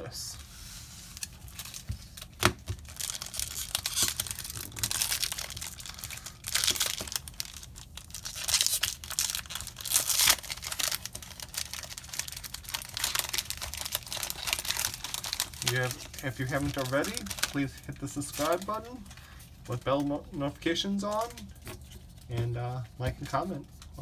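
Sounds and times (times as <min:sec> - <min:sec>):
foil wrapper tearing and crinkling: 0:01.1 - 0:19.0.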